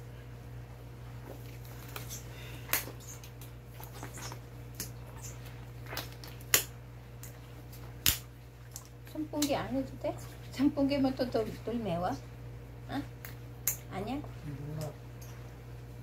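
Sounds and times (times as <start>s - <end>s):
wet squishing and rustling: 1.0s - 11.8s.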